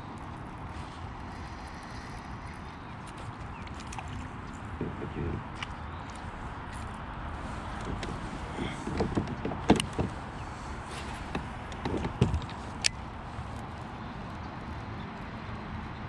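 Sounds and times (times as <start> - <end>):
short knocks and clunks: 4.7 - 5.8, 7.4 - 12.8.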